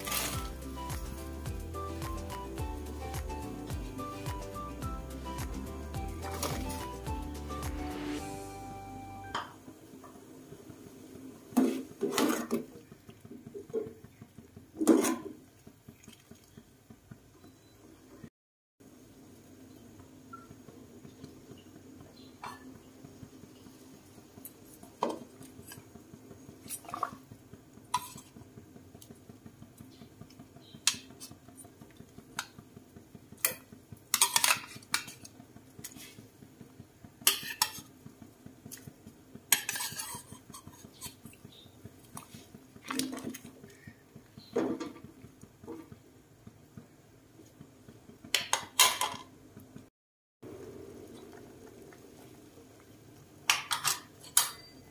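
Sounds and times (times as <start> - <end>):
metal ladle clinking on plate and pot: 33.4 - 35.2, 39.5 - 41.2, 53.5 - 54.9.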